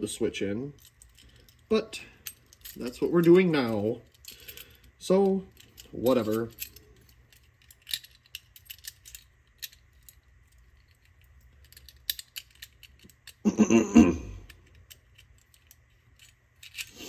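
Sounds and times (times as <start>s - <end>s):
metallic clicks and clinks: 0.6s - 13.4s, 14.4s - 17.0s
person's short voiced sound: 13.5s - 14.4s.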